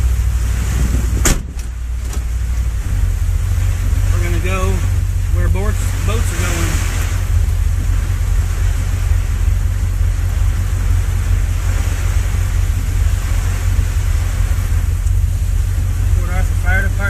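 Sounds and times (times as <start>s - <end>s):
truck engine rumble inside cab: 0.0s - 17.0s.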